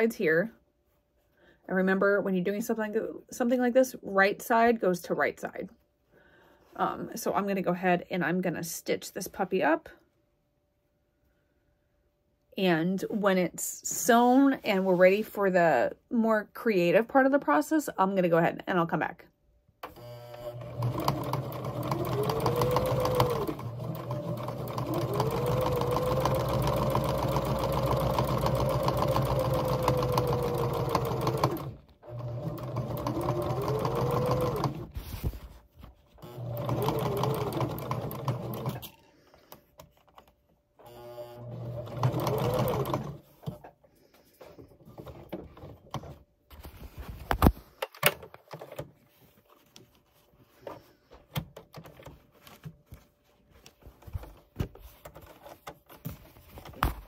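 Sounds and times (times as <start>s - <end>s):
sewing machine stitching: 19.9s - 35.0s, 36.2s - 39.0s, 40.8s - 43.7s.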